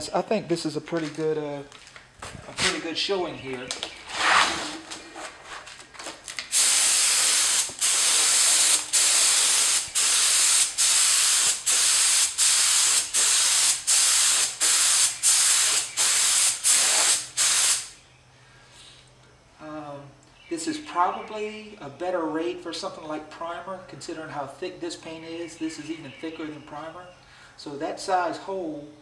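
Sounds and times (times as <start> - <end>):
paint spray gun hissing bursts: 6.5 - 18.0.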